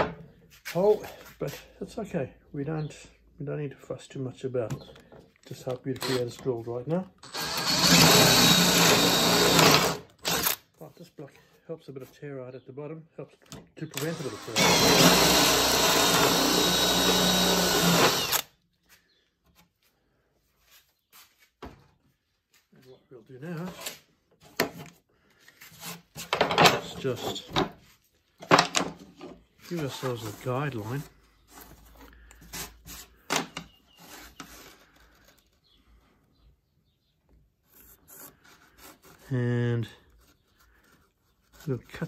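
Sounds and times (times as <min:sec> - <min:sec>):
electric drill boring wood: 0:06.0 - 0:06.4, 0:07.2 - 0:10.6, 0:13.9 - 0:18.5.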